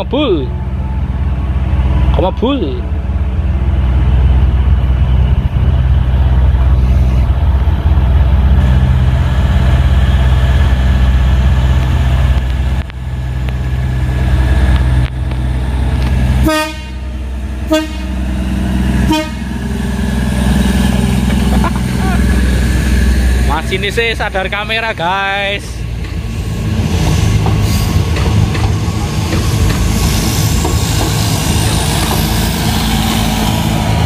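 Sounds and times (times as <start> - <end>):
diesel train engines droning: 0.0 - 34.0
train horn blasts: 16.4 - 18.3, 19.0 - 19.6.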